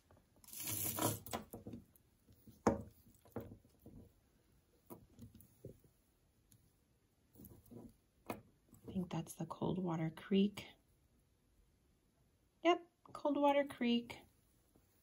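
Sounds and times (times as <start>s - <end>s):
jewelry rustle: 0.3s - 4.2s, 7.2s - 8.1s
beads and metal clicking: 0.4s - 1.5s.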